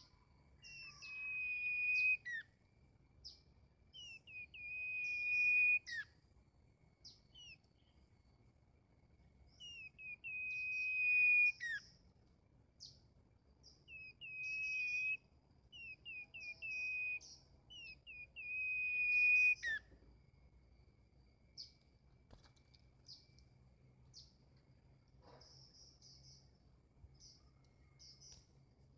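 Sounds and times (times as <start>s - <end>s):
bulbul singing whistled phrases: 0.6s - 2.5s, 3.2s - 6.1s, 7.0s - 7.6s, 9.5s - 12.0s, 13.6s - 19.9s.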